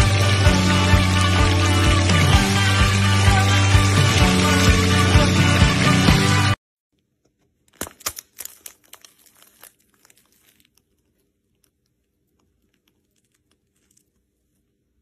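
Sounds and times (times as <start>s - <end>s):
shrimp frying in hot oil: 0.0s - 6.1s.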